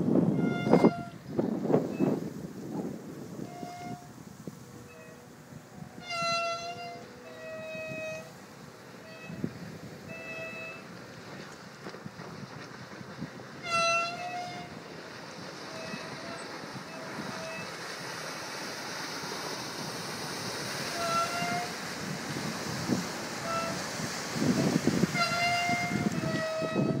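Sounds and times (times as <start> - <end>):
boat engine and spray rushing: 0.0 - 27.0
short horn honks: 0.4 - 1.2, 3.4 - 4.1, 4.7 - 8.4, 9.0 - 9.5, 10.1 - 10.9, 13.6 - 14.8, 21.0 - 21.8, 23.4 - 23.8, 25.0 - 27.0.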